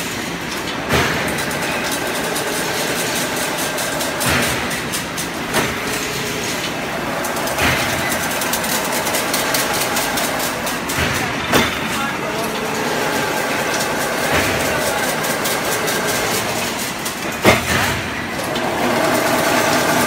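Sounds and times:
machine clattering with rapid clicks: 0.0 - 20.0
heavy machine clunk: 4.2 - 8.6, 17.2 - 18.4.

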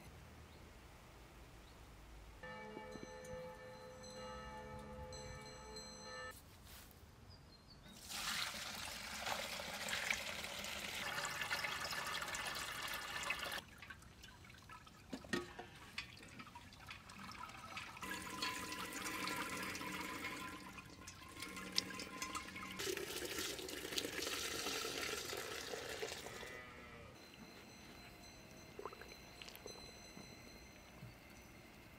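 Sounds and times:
liquid pouring and splashing: 8.0 - 26.4.

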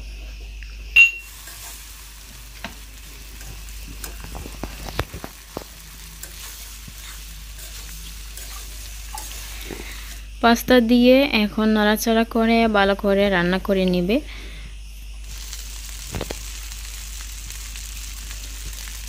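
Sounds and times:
sharp ringing metal clank: 1.0 - 1.3
pasta sizzling in oil: 1.2 - 10.4, 15.2 - 19.0
metal spatula scraping a wok: 1.3 - 2.1, 3.3 - 10.2.

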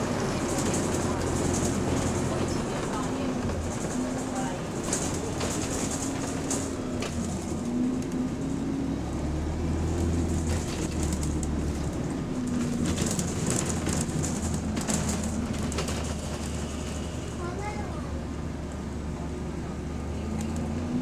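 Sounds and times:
bus drivetrain drone: 0.0 - 21.0
bodywork rattles and clicks: 0.3 - 8.2, 10.1 - 17.8.

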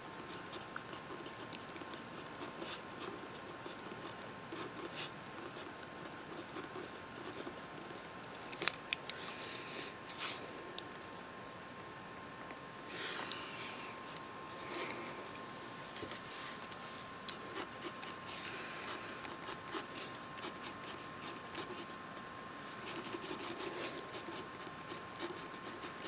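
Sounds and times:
faint steady hum: 0.0 - 26.0
pen scratching on paper: 17.5 - 22.0, 22.8 - 26.0.

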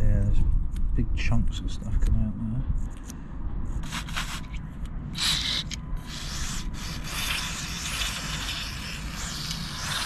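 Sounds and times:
aerosol spray hissing: 3.8 - 4.5, 5.2 - 10.0.

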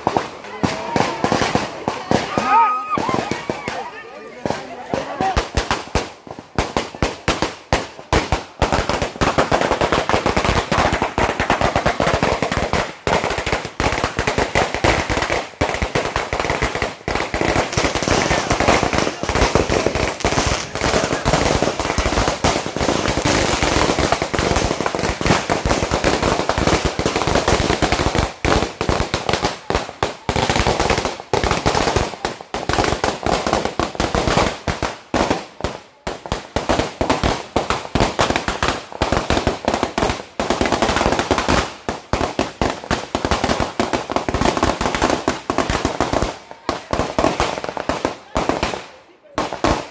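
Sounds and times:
firecrackers crackling: 0.0 - 49.9.

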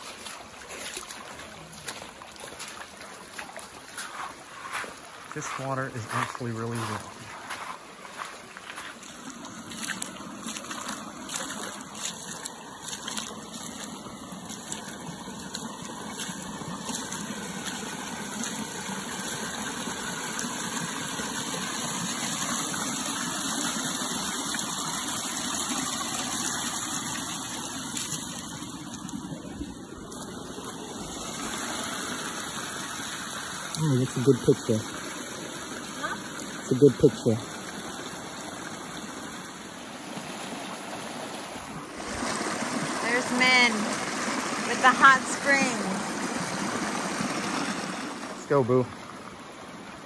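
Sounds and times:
footsteps splashing in water: 0.0 - 39.1
water running over rocks: 0.0 - 50.0.

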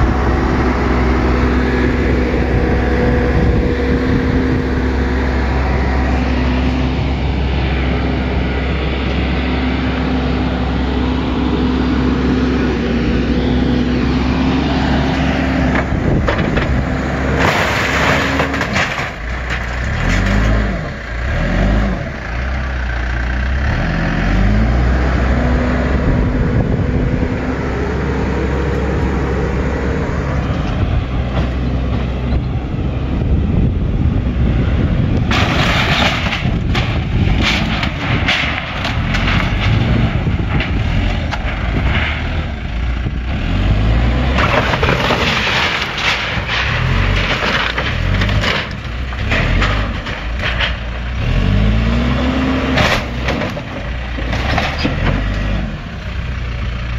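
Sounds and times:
diesel engine revving: 0.0 - 56.9
sheet metal and timber crashing: 15.7 - 20.6, 35.2 - 42.6, 44.1 - 51.5.

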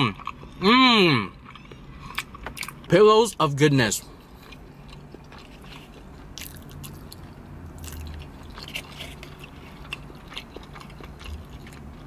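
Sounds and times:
low steady hum: 0.0 - 12.0
mouth chewing: 4.0 - 12.0.

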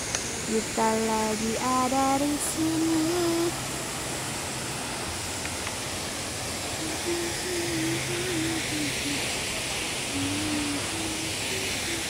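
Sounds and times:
waterfall rushing: 0.0 - 12.0
person singing: 0.5 - 3.6, 6.8 - 9.4, 10.1 - 12.0.

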